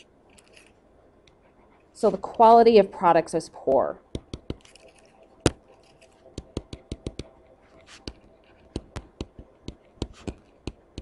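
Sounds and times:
faint stylus scratching: 4.6 - 6.3, 7.6 - 9.0
stylus clicking on tablet screen: 6.0 - 11.0.

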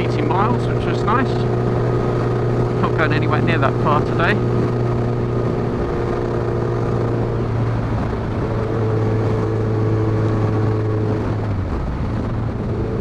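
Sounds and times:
motorcycle engine running: 0.0 - 13.0
rushing road noise: 0.0 - 13.0.

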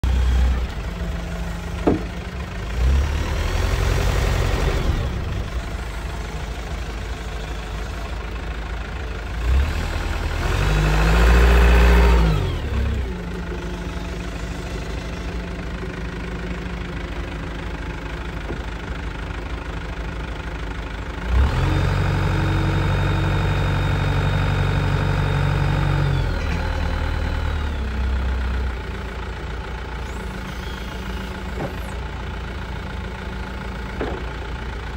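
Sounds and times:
diesel forklift engine revving: 0.0 - 34.9
hydraulic whine: 30.0 - 32.1.

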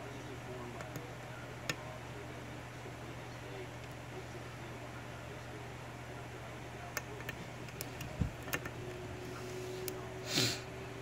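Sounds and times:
steady low hum: 0.0 - 11.0
short hissing rasp: 9.4 - 10.6.

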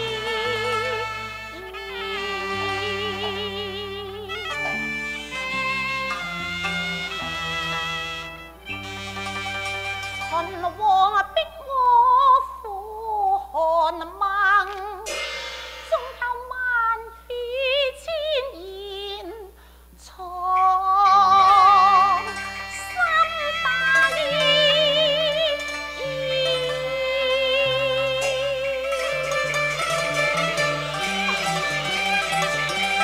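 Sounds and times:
woman singing opera: 0.0 - 4.8, 10.3 - 15.1, 15.9 - 29.3
traditional instrumental ensemble: 0.0 - 11.8, 14.6 - 16.6, 20.6 - 33.0
cymbal crash: 15.1 - 16.5, 27.9 - 33.0.

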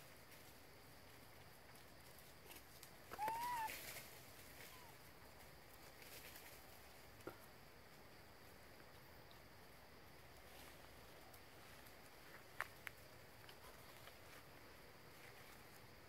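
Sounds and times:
quiet forest background: 0.0 - 16.0
short animal call: 3.1 - 3.7.

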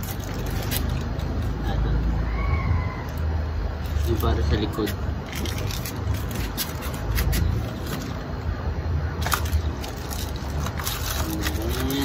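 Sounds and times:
plastic wrapping crinkling: 0.0 - 1.5, 5.2 - 8.2, 9.2 - 12.0.

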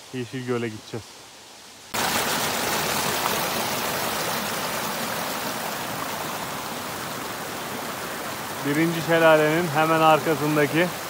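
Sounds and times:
waterfall rushing over rocks: 1.9 - 11.0.

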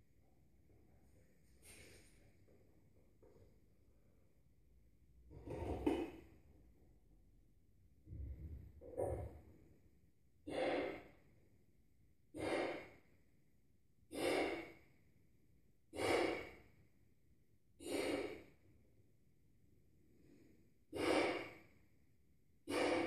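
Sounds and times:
man blowing up balloon: 20.9 - 21.6, 22.6 - 23.0.

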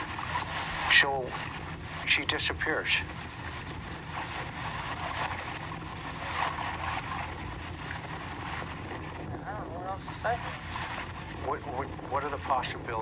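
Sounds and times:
recording hiss and low hum: 0.0 - 13.0.

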